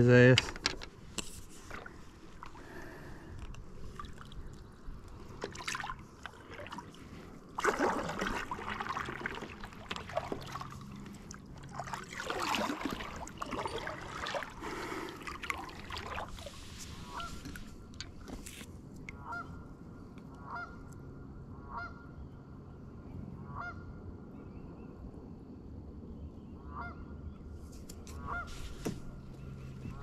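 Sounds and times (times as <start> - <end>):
water swishes: 1.0 - 19.4
water sloshing around kayak: 1.0 - 19.5.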